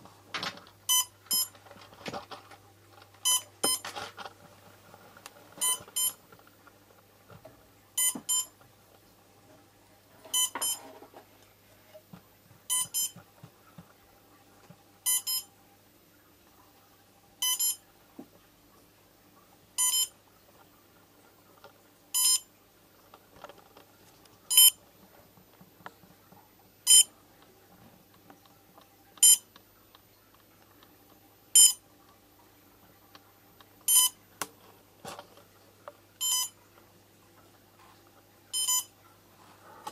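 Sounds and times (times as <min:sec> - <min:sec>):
short high electronic beeps: 0:31.6 - 0:31.8, 0:33.9 - 0:34.1, 0:36.2 - 0:36.5.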